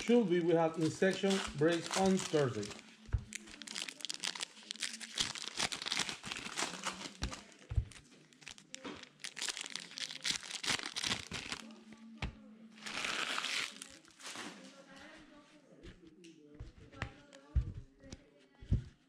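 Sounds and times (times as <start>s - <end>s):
foil wrappers crinkling and tearing: 0.0s - 11.8s, 12.8s - 14.6s.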